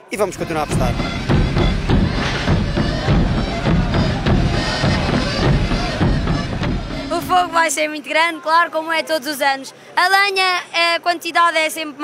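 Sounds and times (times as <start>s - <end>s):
button accordion playing: 0.2s - 7.6s
bass drums beating: 0.2s - 7.7s.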